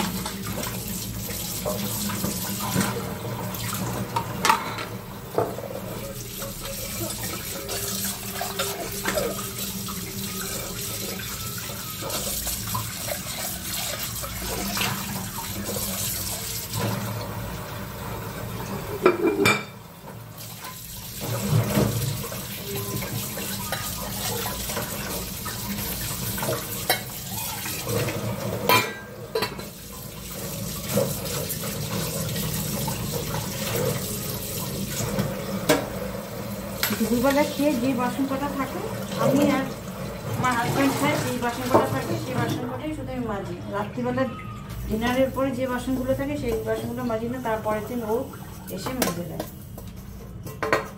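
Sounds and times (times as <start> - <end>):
dishes being scrubbed: 0.0 - 17.2, 18.7 - 19.8, 20.4 - 36.0, 36.7 - 42.8, 44.6 - 50.9
dishes clinking and clattering: 1.5 - 17.2, 18.7 - 19.9, 20.6 - 36.1, 36.7 - 37.6, 39.0 - 42.9, 48.7 - 50.9.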